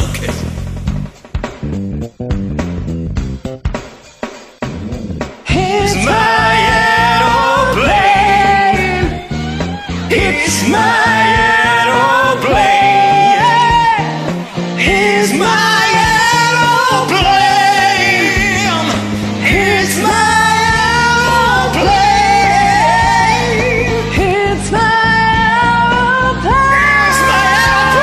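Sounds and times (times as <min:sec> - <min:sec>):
karaoke backing track: 0:02.6 - 0:28.0
man and woman singing: 0:05.5 - 0:09.3, 0:10.1 - 0:14.2, 0:14.8 - 0:28.0.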